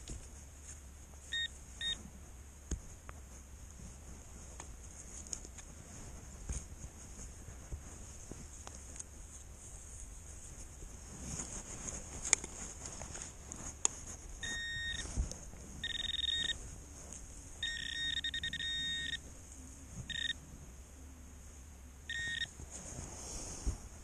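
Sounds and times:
metal detector pinpointer beeping: 1.3s - 2.0s, 14.4s - 15.2s, 15.8s - 16.6s, 17.6s - 19.3s, 20.0s - 20.4s, 22.1s - 22.6s.

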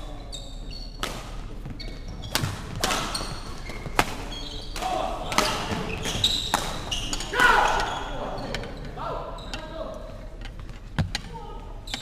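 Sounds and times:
shoes squeaking on wooden floor: 0.0s - 9.8s
racket striking shuttlecock: 3.8s - 7.3s.

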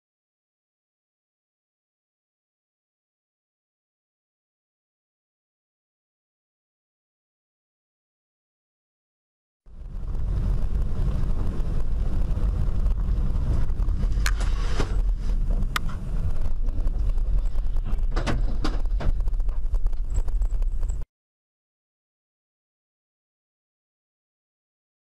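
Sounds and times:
car road and engine rumble: 9.7s - 21.0s.

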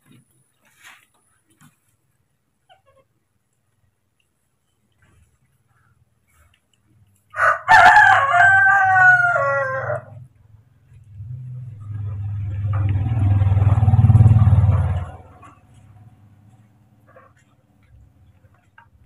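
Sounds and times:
rooster crowing: 7.3s - 10.3s
low rumble: 10.9s - 16.5s.

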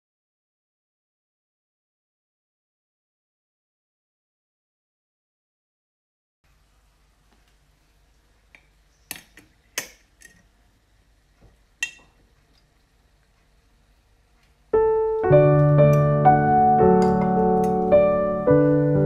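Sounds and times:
piano music: 14.8s - 19.0s.

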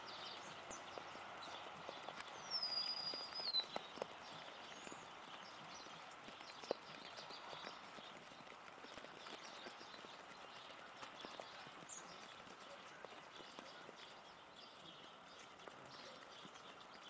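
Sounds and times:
rain dripping and pattering: 0.0s - 17.0s.

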